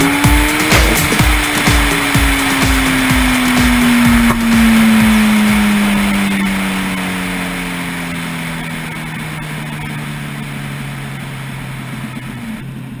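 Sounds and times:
wind rushing over microphone: 0.0 - 7.5
motorcycle engine decelerating: 0.0 - 13.0.

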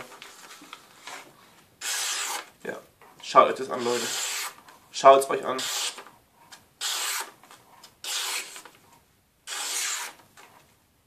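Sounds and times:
knife slicing paper: 6.8 - 7.4, 8.0 - 8.7, 9.5 - 10.2.

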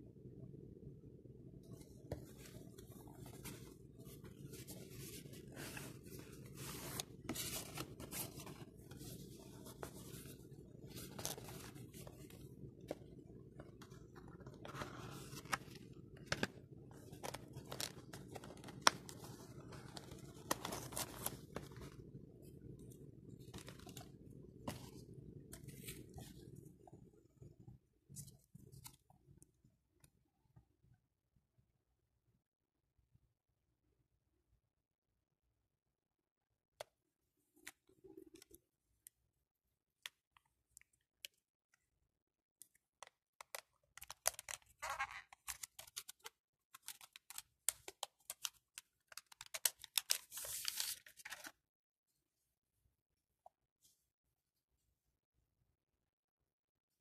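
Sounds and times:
packaging crinkling: 43.5 - 51.5.

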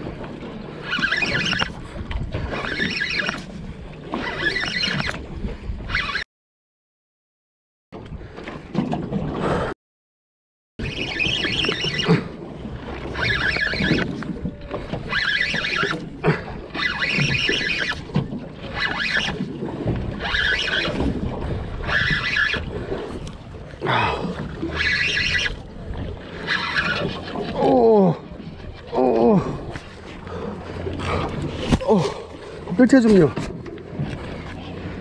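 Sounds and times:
water: 0.0 - 6.3, 8.0 - 9.8, 10.8 - 35.0
wind: 0.0 - 6.3, 7.9 - 9.8, 10.8 - 35.0
fishing reel cranking: 0.8 - 1.8, 4.1 - 5.2, 13.1 - 14.2, 15.0 - 16.0, 16.8 - 19.5, 20.2 - 21.0, 21.8 - 23.4, 24.6 - 25.6, 26.3 - 27.6.

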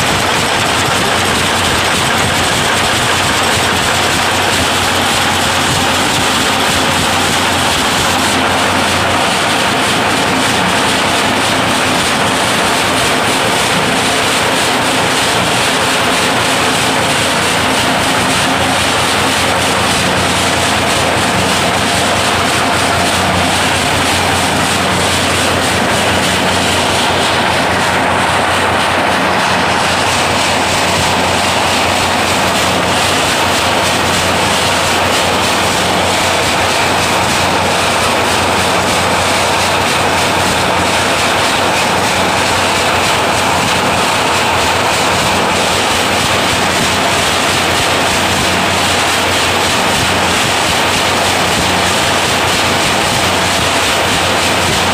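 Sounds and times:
nail making machine clattering: 0.0 - 54.9.

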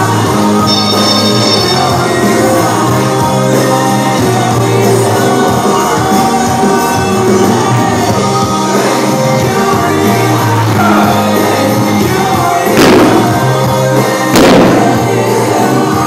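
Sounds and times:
background music with singing: 0.0 - 16.0
loud crashes: 12.8 - 13.7, 14.3 - 15.3.

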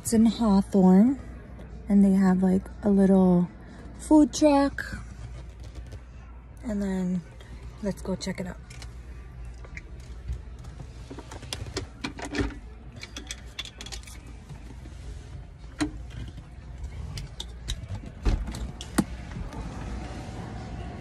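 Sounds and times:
low car rumble: 15.4 - 21.0.

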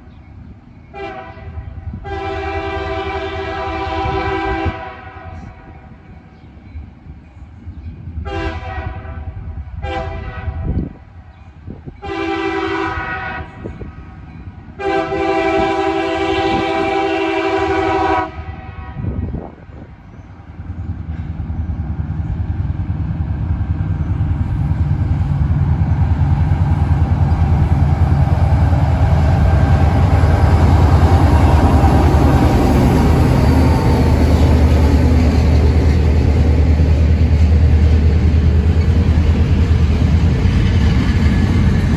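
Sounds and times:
train passing: 0.0 - 41.9
train horn blasts: 0.9 - 5.8, 8.2 - 11.0, 12.0 - 14.1, 14.8 - 19.5, 29.3 - 33.5.

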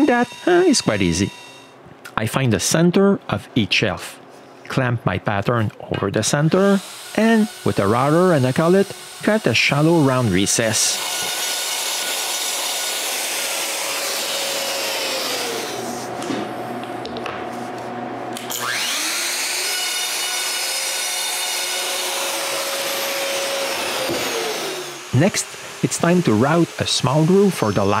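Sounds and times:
dust extractor drawing air: 0.0 - 1.4, 6.3 - 16.2, 21.7 - 28.0
router motor cutting wood: 0.0 - 1.7, 6.3 - 16.2, 18.4 - 28.0.

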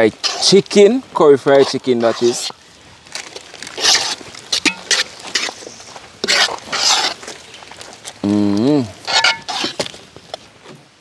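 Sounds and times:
metal spoon scraping pot: 0.1 - 0.7, 1.5 - 2.6, 3.7 - 5.6, 6.2 - 7.2, 9.0 - 9.8.

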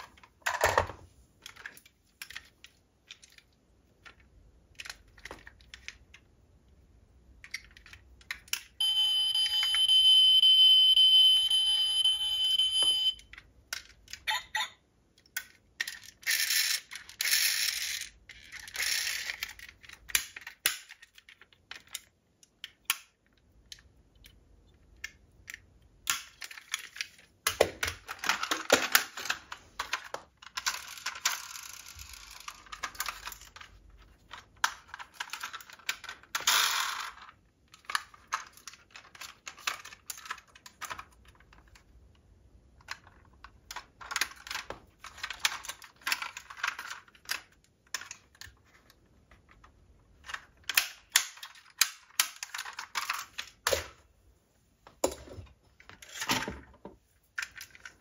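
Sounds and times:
metal model cars clicking and rattling: 15.2 - 27.3, 27.9 - 41.9, 42.8 - 53.6.

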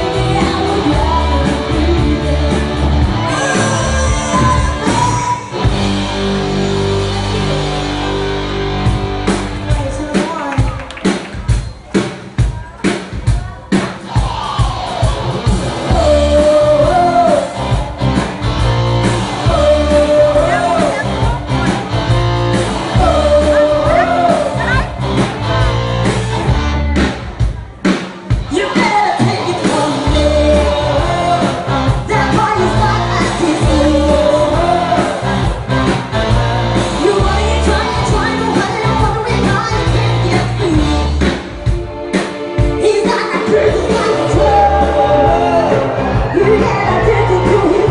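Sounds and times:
woman singing into a microphone: 0.0 - 5.6, 15.9 - 17.5, 19.4 - 21.0, 22.9 - 24.7, 28.5 - 35.2
heavy bass line: 0.0 - 10.2, 14.1 - 27.6, 28.4 - 41.8, 42.6 - 47.9
live rock band playing: 0.0 - 47.9.

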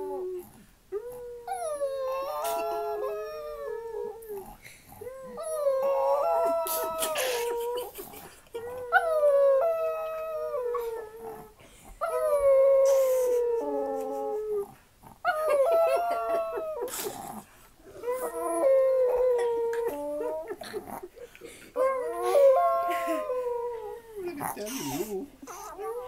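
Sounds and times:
small dog howling: 5.0 - 7.9, 8.6 - 16.9, 21.8 - 24.1.

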